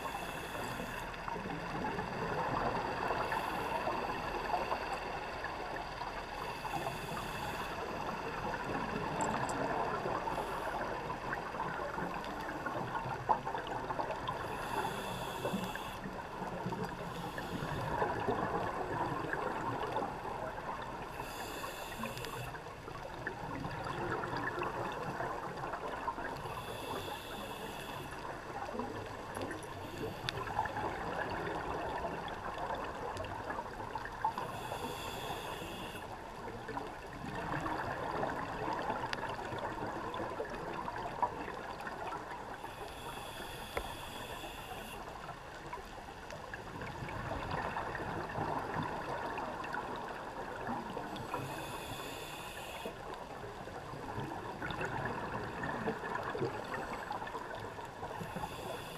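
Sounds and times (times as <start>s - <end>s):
scuba regulator breathing: 0.0s - 1.2s, 2.9s - 4.8s, 6.3s - 8.2s, 14.4s - 16.2s, 17.0s - 19.2s, 21.0s - 22.6s, 26.4s - 28.3s, 34.4s - 36.1s, 42.6s - 45.1s, 51.1s - 53.1s, 58.2s - 58.9s
faint clicks: 9.1s - 10.8s, 13.6s - 18.4s, 21.9s - 23.1s, 42.7s - 46.5s.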